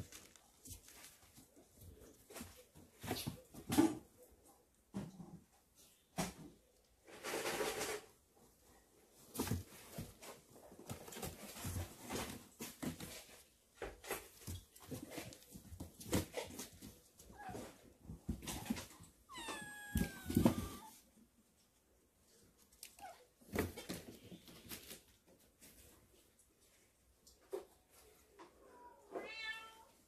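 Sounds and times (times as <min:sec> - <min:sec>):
kittens eating and moving: 0:00.0 - 0:30.0
kitten meowing: 0:19.3 - 0:21.0.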